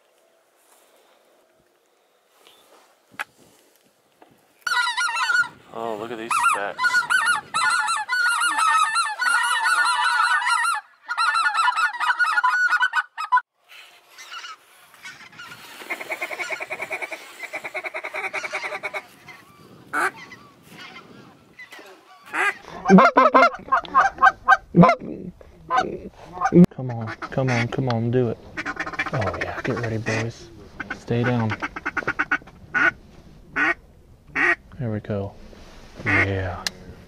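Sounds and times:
geese honking overhead: 4.6 - 25.0, 25.7 - 34.6.

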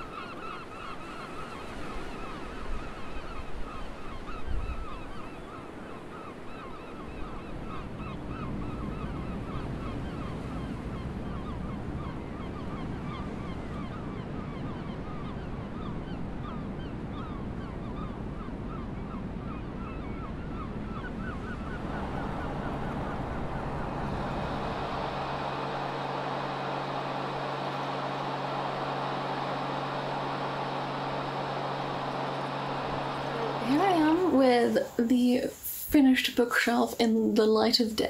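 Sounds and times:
ship's engine hum: 0.0 - 38.0
birds honking: 21.3 - 35.5
ferry engine rumble: 21.5 - 38.0.

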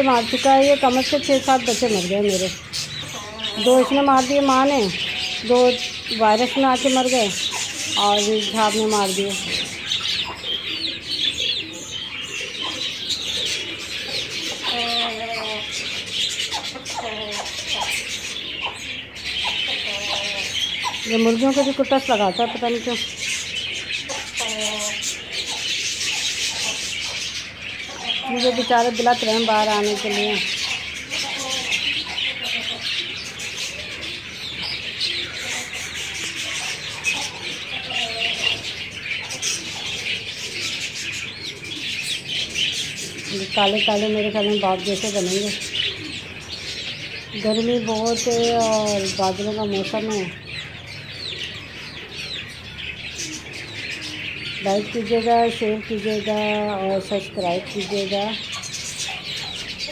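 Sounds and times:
chicken calls: 0.0 - 59.9
small birds chirping: 0.0 - 59.9.

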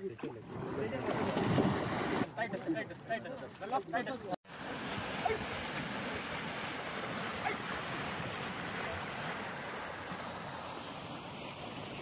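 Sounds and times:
fast-flowing water rushing: 4.5 - 12.0.

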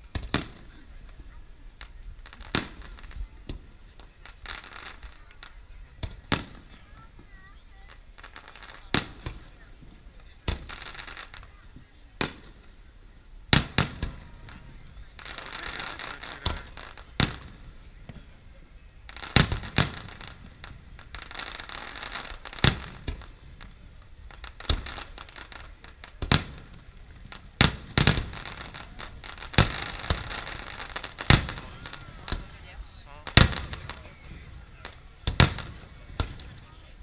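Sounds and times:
firework shells bursting: 19.1 - 36.8.

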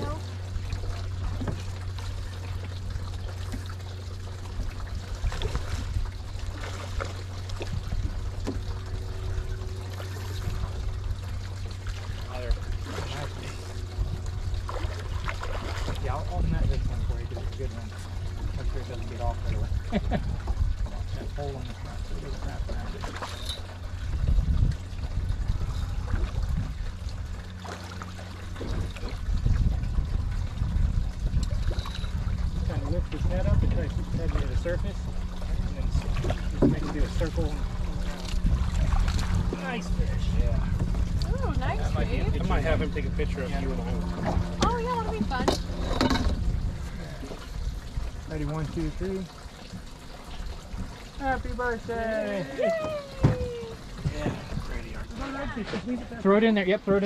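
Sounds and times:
steady low rumble: 0.0 - 57.0
water lapping against boat hull: 0.0 - 57.0.

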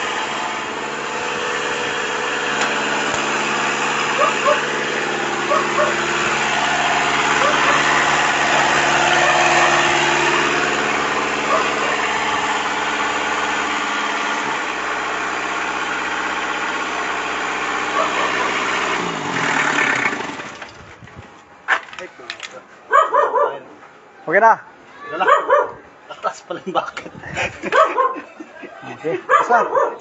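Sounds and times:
diesel engine running: 0.0 - 22.0.

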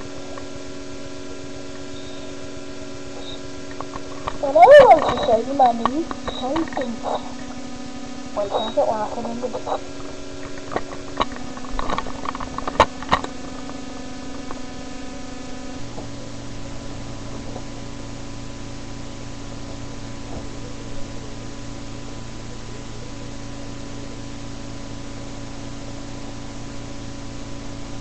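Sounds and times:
steady hiss with low hum: 0.0 - 28.0.

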